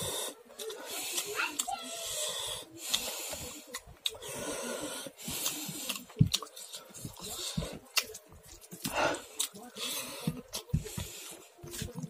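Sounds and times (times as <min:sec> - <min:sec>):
wheezy breathing: 0:00.0 - 0:07.9
man chewing with crunches: 0:00.0 - 0:12.0
wet mouth clicks: 0:05.4 - 0:06.8.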